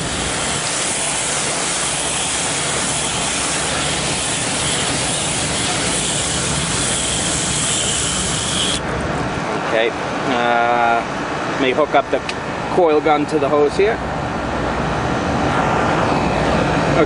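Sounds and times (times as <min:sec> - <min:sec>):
hose spray hitting metal fins: 0:00.0 - 0:08.8.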